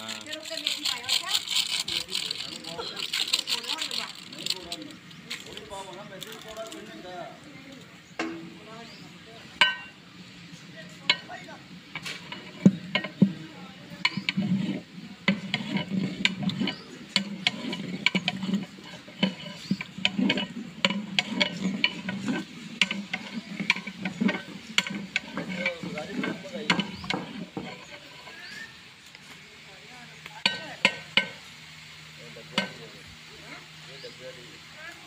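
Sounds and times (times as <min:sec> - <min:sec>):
metal ladle scraping a pot: 0:00.0 - 0:05.0, 0:11.1 - 0:28.9.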